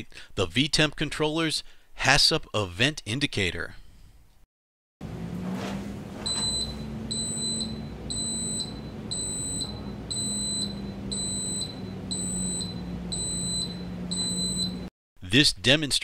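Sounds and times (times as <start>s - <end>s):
high-pitched electronic alarm beep: 6.3s - 14.8s.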